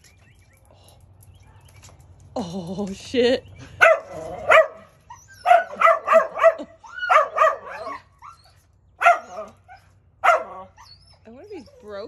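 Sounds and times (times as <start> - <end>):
dog barking: 3.8 - 8.0, 9.0 - 9.6, 10.2 - 10.7.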